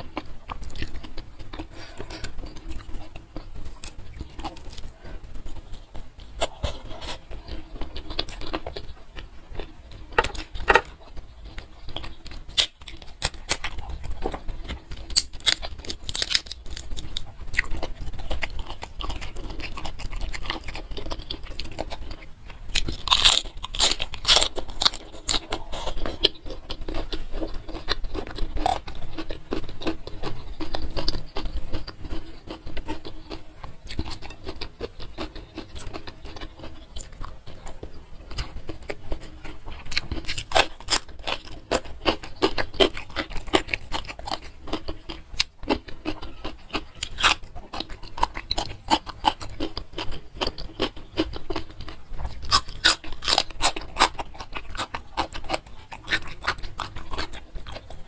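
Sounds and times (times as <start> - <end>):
crisp chewing crunches: 0.0 - 58.0.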